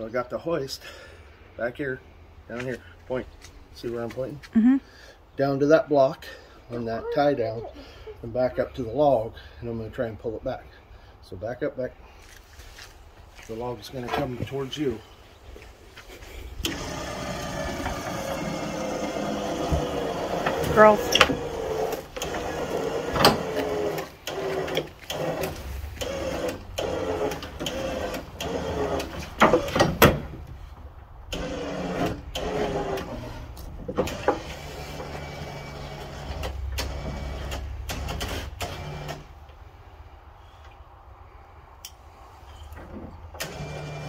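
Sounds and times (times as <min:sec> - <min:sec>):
hand hoist ratcheting: 0:16.6 - 0:30.1.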